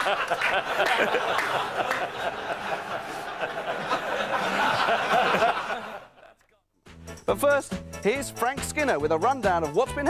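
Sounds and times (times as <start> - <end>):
studio audience laughing: 0.0 - 6.5.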